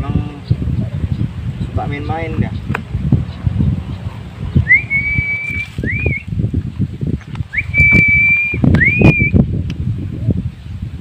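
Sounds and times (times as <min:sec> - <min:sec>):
low wind rumble: 0:00.0 - 0:11.0
person whistling a call: 0:04.7 - 0:06.3, 0:07.5 - 0:09.4.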